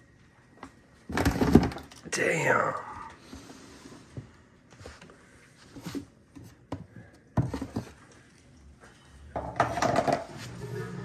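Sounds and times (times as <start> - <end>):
plastic scraping rattle: 1.1 - 2.0
plastic tub knocks and clatter: 1.1 - 2.0, 9.4 - 10.3.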